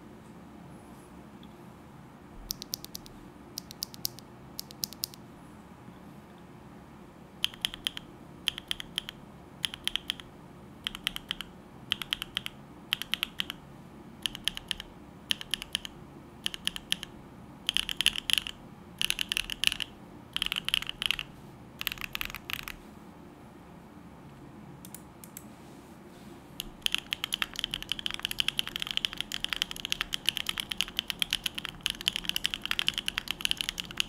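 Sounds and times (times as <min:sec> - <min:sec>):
typing on mechanical keyboard: 0:02.5 - 0:05.2, 0:07.4 - 0:13.6, 0:14.2 - 0:17.1, 0:17.7 - 0:22.8, 0:26.6 - 0:34.0.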